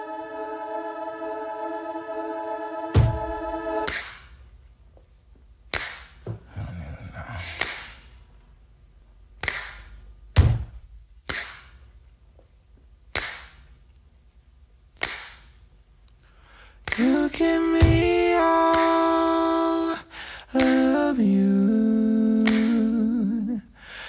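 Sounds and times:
reverberating percussive hits: 2.9s - 4.2s.

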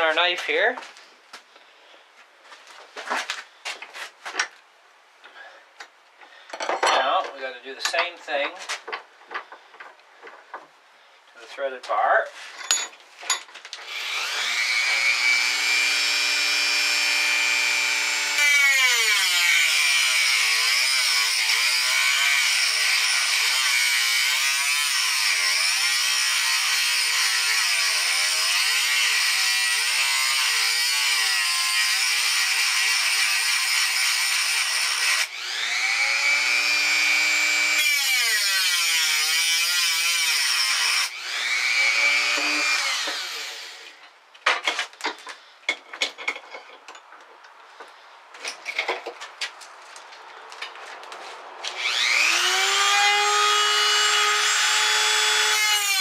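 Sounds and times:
rotary tool grinding metal: 13.8s - 43.9s, 51.8s - 56.0s.

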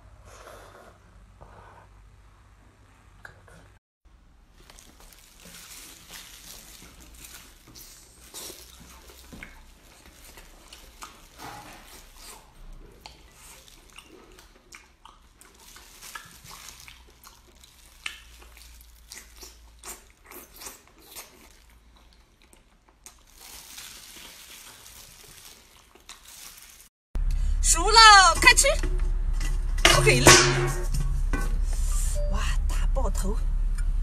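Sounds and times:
person chewing: 4.6s - 27.3s.

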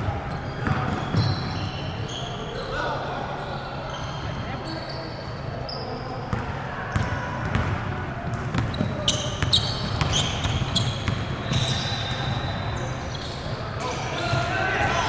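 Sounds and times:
shoes squeaking on court: 0.3s - 2.8s, 3.4s - 6.3s, 8.3s - 14.5s.

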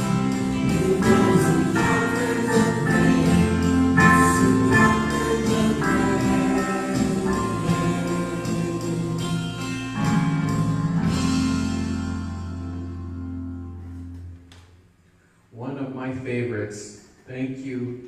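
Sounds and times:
worship band singing: 0.0s - 11.2s.

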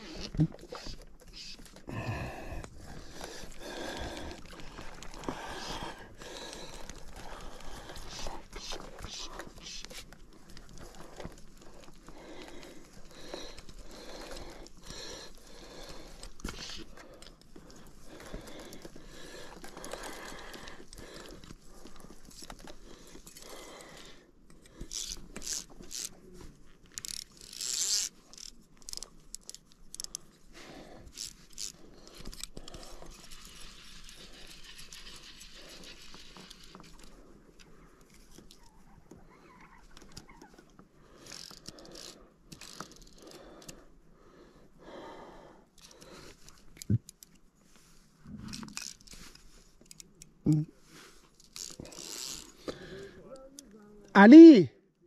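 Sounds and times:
fly reel clicking: 24.8s - 26.2s, 27.0s - 30.1s, 51.5s - 52.6s.

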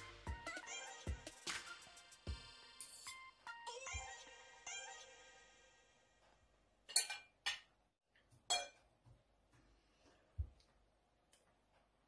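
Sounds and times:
cutlery clinking on ceramic plate: 6.9s - 7.7s, 8.5s - 8.8s.

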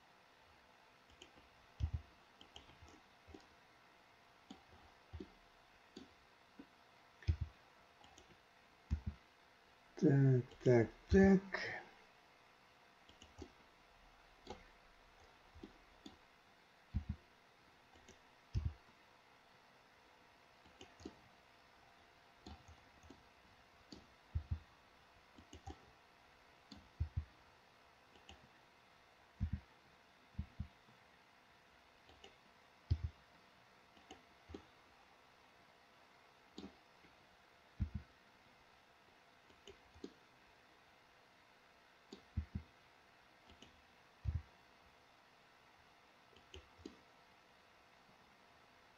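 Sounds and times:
computer mouse clicks: 1.0s - 3.6s, 4.4s - 9.2s, 13.0s - 13.6s, 14.4s - 16.2s, 16.9s - 17.2s, 17.9s - 19.0s, 20.6s - 21.3s, 22.4s - 24.6s, 25.4s - 25.9s, 26.6s - 27.3s, 28.1s - 28.5s, 29.4s - 29.7s, 30.4s - 30.8s, 32.1s - 33.2s, 33.9s - 34.7s, 36.5s - 37.2s, 37.8s - 38.1s, 39.4s - 40.2s, 42.1s - 42.7s, 43.4s - 44.5s, 46.3s - 47.0s
keyboard clicks: 1.1s - 3.5s, 4.5s - 5.3s, 5.9s - 9.2s, 13.1s - 13.6s, 14.4s - 14.6s, 16.9s - 17.2s, 17.9s - 18.9s, 20.6s - 21.2s, 22.4s - 23.2s, 25.4s - 25.8s, 28.1s - 28.5s, 29.4s - 29.7s, 32.1s - 33.2s, 36.6s - 36.8s, 39.5s - 40.2s, 43.5s - 44.5s, 46.4s - 47.0s.

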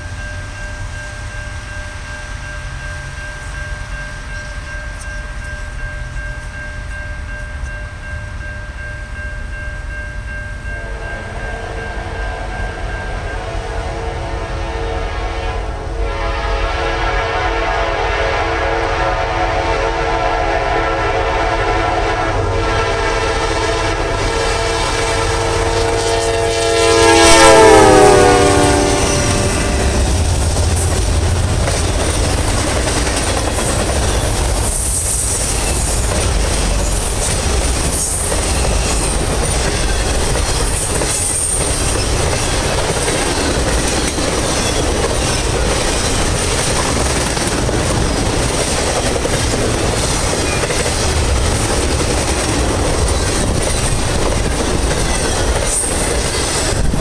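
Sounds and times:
freight train rumble and clatter: 0.0s - 57.0s
train horn blast: 10.8s - 31.4s
wheels clicking over rail joints: 29.6s - 57.0s.

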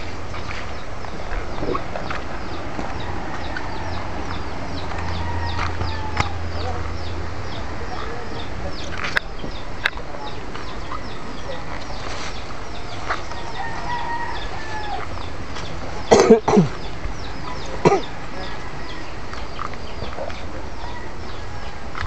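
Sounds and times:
chickens chirping: 0.0s - 22.0s.

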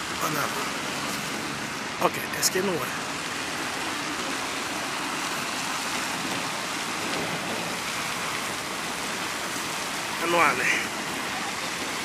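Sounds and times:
fountain jet splashing into pond: 0.0s - 12.0s.

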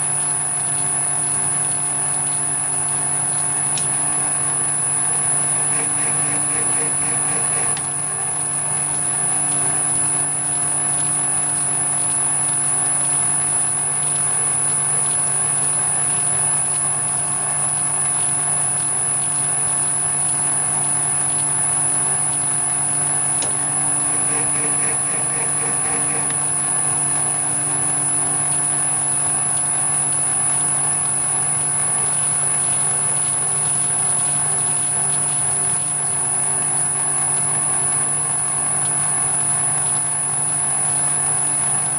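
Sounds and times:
metal lathe running: 3.1s - 19.4s, 20.5s - 36.5s.

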